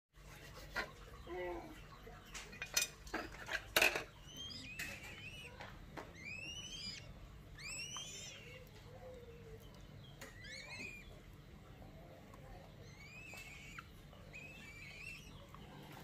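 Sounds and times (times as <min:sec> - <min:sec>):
bird chick cheeping: 0:04.1 - 0:16.0.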